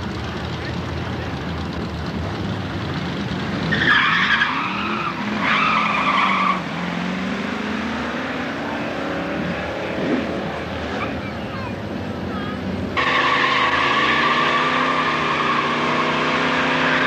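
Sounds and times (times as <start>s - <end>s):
car engines rumbling: 0.0s - 17.0s
tyre squeal: 3.7s - 6.7s, 13.0s - 17.0s.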